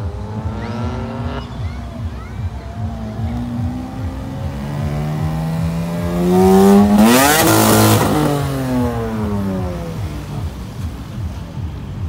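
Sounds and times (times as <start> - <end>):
car accelerating past: 0.0 - 1.9, 3.2 - 10.4.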